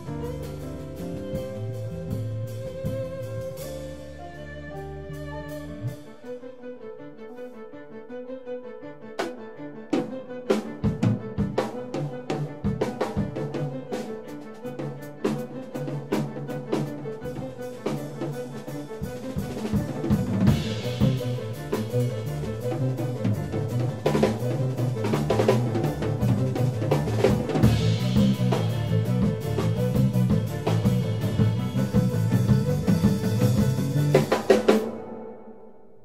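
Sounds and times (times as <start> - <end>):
electric bass guitar line: 0.0 - 6.0, 20.2 - 34.6
busy drumming: 0.0 - 6.3, 9.2 - 35.5.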